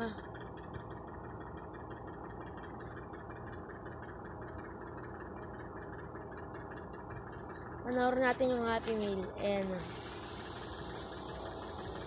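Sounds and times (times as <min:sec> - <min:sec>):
low background hum: 0:00.0 - 0:12.0
even hiss: 0:09.7 - 0:12.0.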